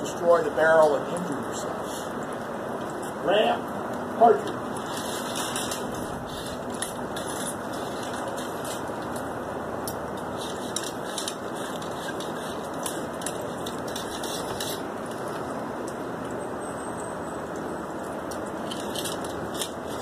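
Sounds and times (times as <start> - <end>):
ramrods scraping in barrels: 4.5 - 9.3, 10.2 - 15.6.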